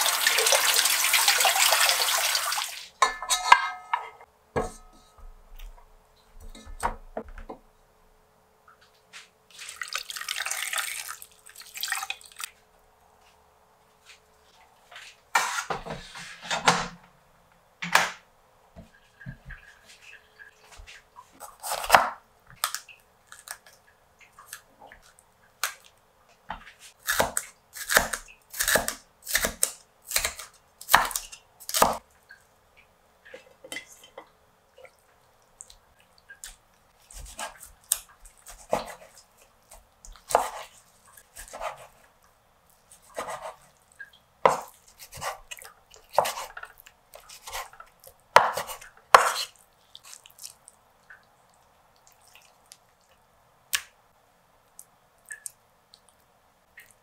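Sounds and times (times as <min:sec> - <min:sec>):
knife cutting meat on board: 0:37.1 - 0:39.2, 0:40.2 - 0:40.7, 0:41.4 - 0:42.0, 0:43.0 - 0:43.6, 0:44.5 - 0:45.5, 0:46.1 - 0:46.6, 0:47.2 - 0:47.8, 0:48.4 - 0:49.5.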